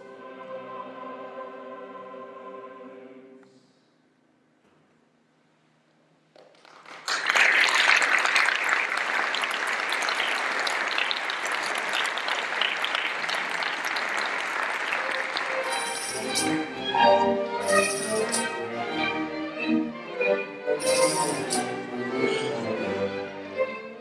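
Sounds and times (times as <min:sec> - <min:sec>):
audience applauding: 0:06.4 - 0:16.4
orchestra strings playing: 0:14.9 - 0:24.0.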